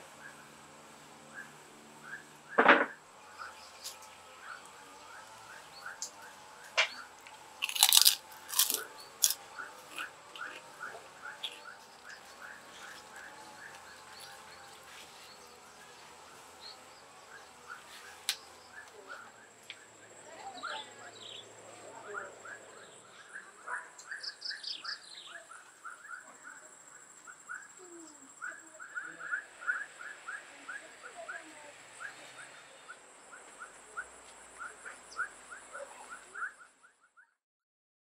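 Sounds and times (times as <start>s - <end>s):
bird chirping: 1.3s - 7.2s, 8.0s - 37.2s
higher falling bird calls: 8.6s - 37.0s.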